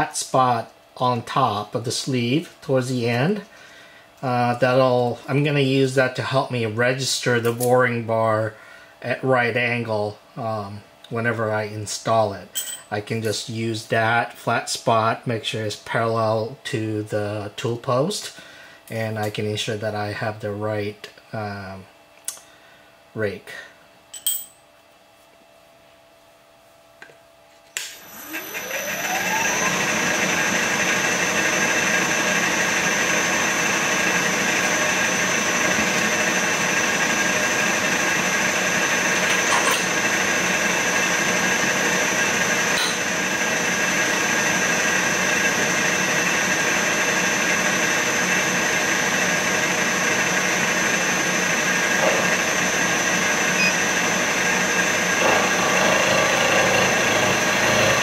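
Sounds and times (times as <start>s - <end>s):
milling machine spindle whine: 28.0s - 58.0s.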